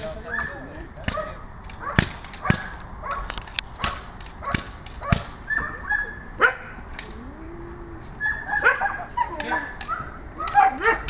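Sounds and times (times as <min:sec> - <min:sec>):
dog barking and yelping: 0:01.8 - 0:06.8, 0:08.2 - 0:11.0.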